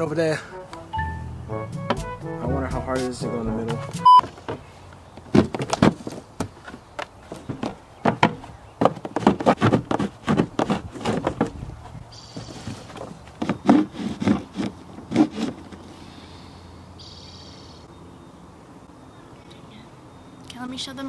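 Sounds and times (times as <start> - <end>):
hand saw cutting plastic: 9.2 - 11.5, 13.4 - 15.8.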